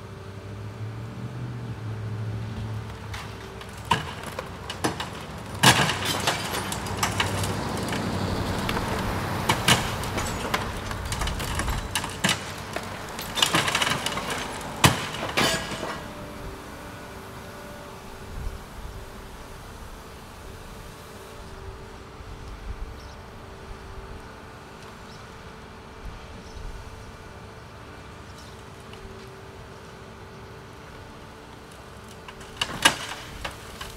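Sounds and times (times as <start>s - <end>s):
excavator rumble: 0.0s - 33.9s
passing street traffic: 0.0s - 33.9s
brick wall cracking and falling: 2.9s - 16.3s, 32.3s - 33.9s.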